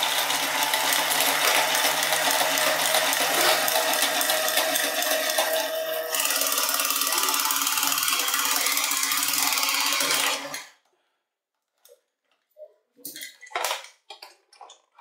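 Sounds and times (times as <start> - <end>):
small motor and gears whirring: 0.0 - 10.8.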